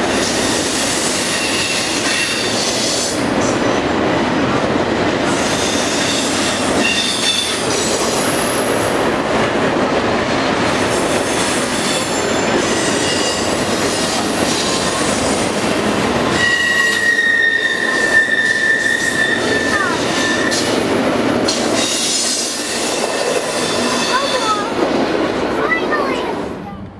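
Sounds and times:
freight train wheels rumbling on rail: 0:00.0 - 0:26.9
steady flange squeal: 0:16.3 - 0:20.6
high wheel squeals: 0:16.3 - 0:20.7.

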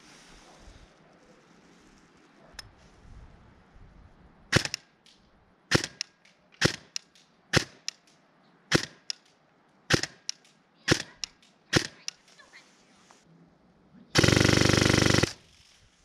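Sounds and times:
airsoft gun shots: 0:04.5 - 0:04.9, 0:05.7 - 0:07.9, 0:08.7 - 0:09.1, 0:09.9 - 0:10.3, 0:10.9 - 0:12.1, 0:14.2 - 0:15.4.

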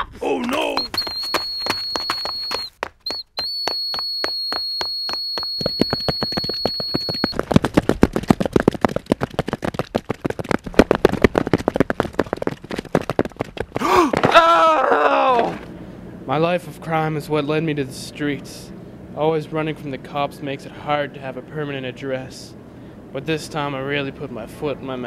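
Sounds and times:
shrill steady high tone: 0:00.5 - 0:07.4
rapid sharp clicks and knocks: 0:02.4 - 0:13.8.

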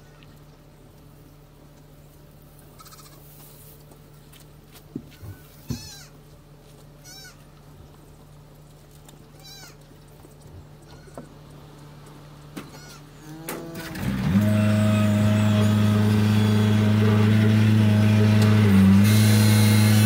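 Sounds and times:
farm animal bleating: 0:02.6 - 0:03.6, 0:05.1 - 0:06.3, 0:06.9 - 0:07.8, 0:09.3 - 0:10.0, 0:10.8 - 0:11.4, 0:12.6 - 0:17.1.

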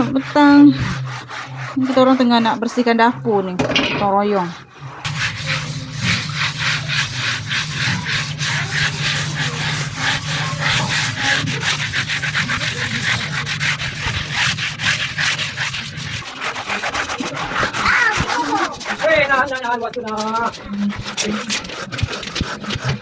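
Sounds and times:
scrubbers rasping on cement wall: 0:00.0 - 0:03.6, 0:04.2 - 0:23.0
steady low hum: 0:04.4 - 0:16.4.

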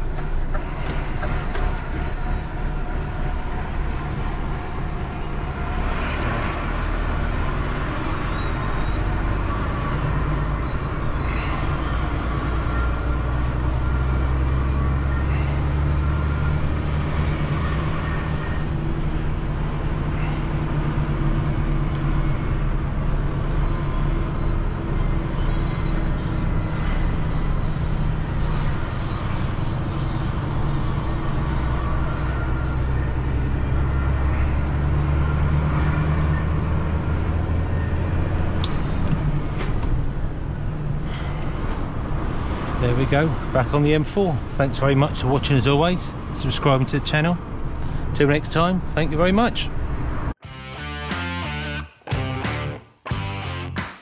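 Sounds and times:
diesel truck engine under load: 0:00.0 - 0:50.4
road noise: 0:00.0 - 0:54.0.

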